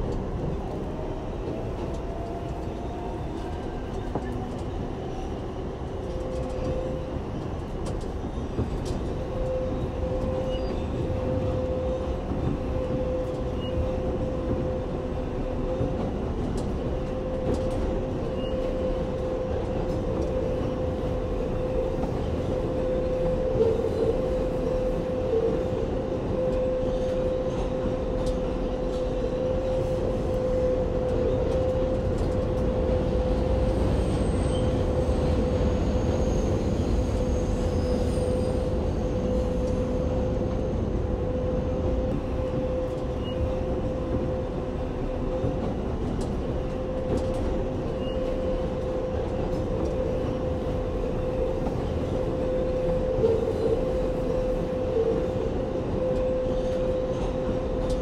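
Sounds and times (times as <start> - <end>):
train wheels rumbling on track: 0.0 - 58.0
high wheel squeals: 33.7 - 40.3.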